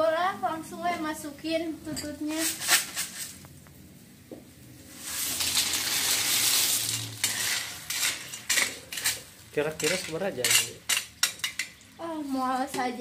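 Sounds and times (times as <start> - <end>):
shells pouring into liquid: 4.9 - 8.4
shells and spatula clinking on wok: 5.2 - 11.9.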